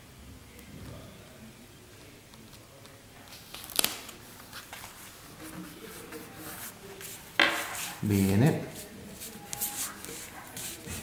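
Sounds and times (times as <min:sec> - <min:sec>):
paper crinkle: 0:02.4 - 0:08.0, 0:08.8 - 0:11.0
fingers rubbing paper: 0:05.4 - 0:11.0.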